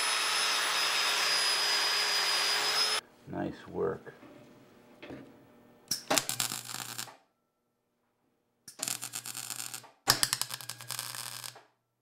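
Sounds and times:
welder arc crackling and buzzing: 6.0s - 7.2s, 8.7s - 11.6s.

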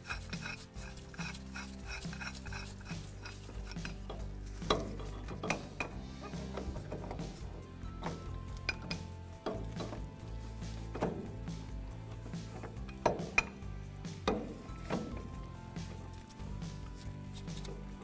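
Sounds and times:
forcing screw turned by hand: 0.0s - 18.0s
metal clicks and clinks: 8.0s - 10.2s.

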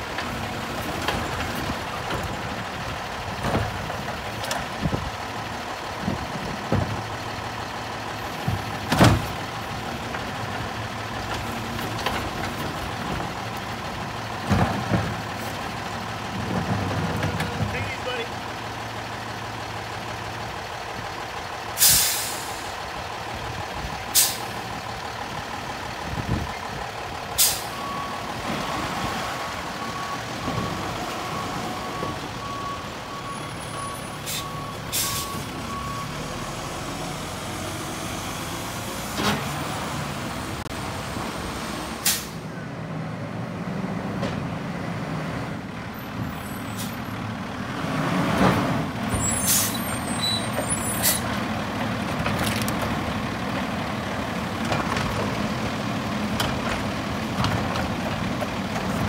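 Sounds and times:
diesel engine running: 0.0s - 59.0s
air brakes hissing: 21.8s - 22.7s, 24.1s - 24.5s, 27.4s - 27.8s, 34.1s - 35.5s, 42.0s - 42.4s, 49.2s - 51.3s.

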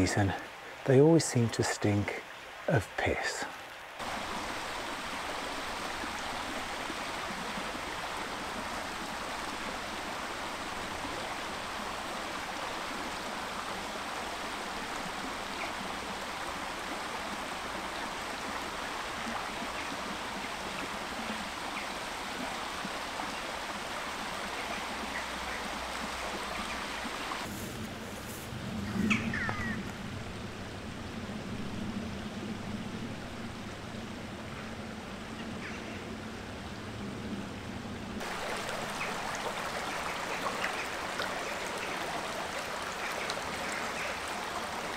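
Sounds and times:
river flowing over rocks: 0.0s - 27.5s, 38.2s - 44.9s.

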